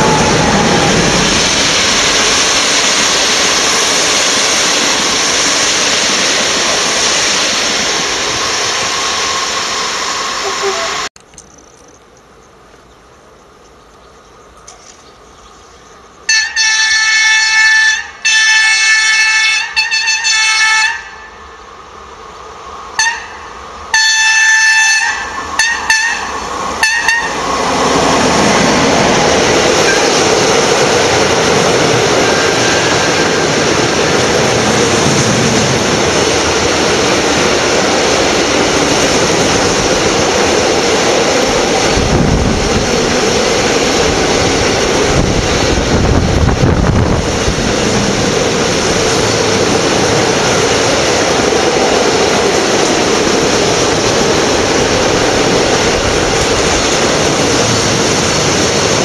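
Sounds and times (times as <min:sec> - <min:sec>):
train passing at speed: 0:00.0 - 0:11.1, 0:12.1 - 0:59.0
short pitched horn blasts: 0:23.9 - 0:27.4.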